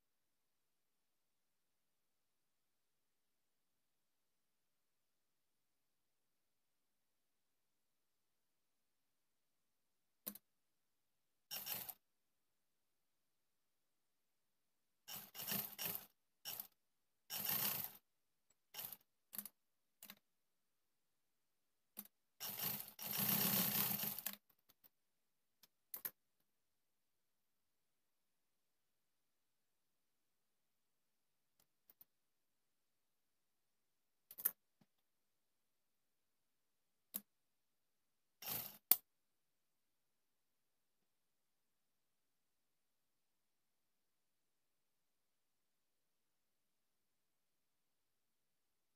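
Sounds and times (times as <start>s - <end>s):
sewing machine stitching: 11.5s - 12.0s, 15.1s - 18.1s, 18.7s - 20.2s, 22.4s - 24.5s, 38.4s - 39.0s.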